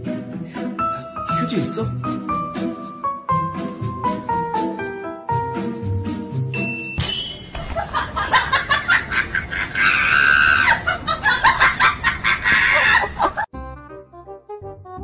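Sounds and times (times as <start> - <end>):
chicken squawk: 9.6 - 10.8.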